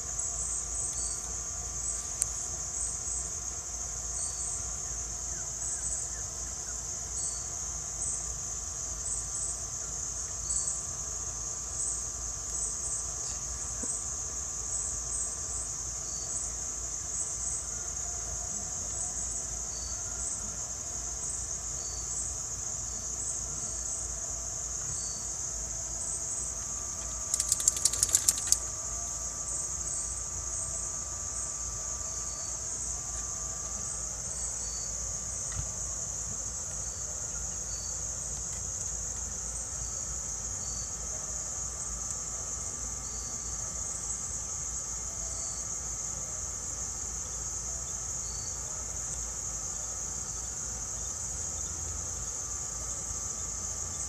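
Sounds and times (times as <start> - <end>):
crickets and insects trilling: 0.0 - 54.0
sharp clicks: 27.3 - 28.6.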